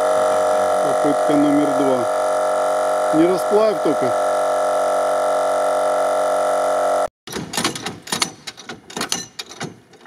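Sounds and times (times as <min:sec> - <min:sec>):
air compressor humming: 0:00.0 - 0:07.1
irregular clicks and knocks: 0:07.3 - 0:10.0.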